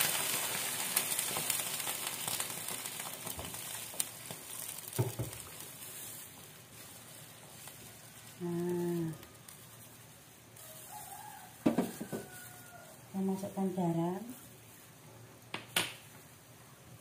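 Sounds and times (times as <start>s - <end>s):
water sizzling in wok: 0.0s - 15.0s
spatula knocking on pan: 4.9s - 5.4s, 11.6s - 12.3s.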